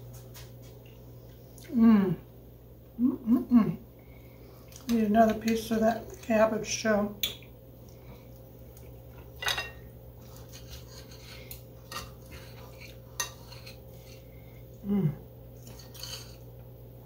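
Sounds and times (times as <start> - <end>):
person murmuring: 3.0 - 3.9, 14.8 - 15.2
knife and fork clinking on plate: 9.4 - 9.9.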